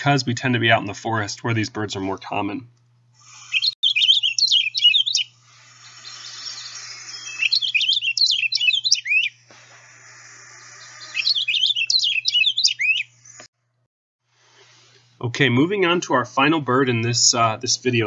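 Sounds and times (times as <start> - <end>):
finch song warble: 3.2 - 13.5.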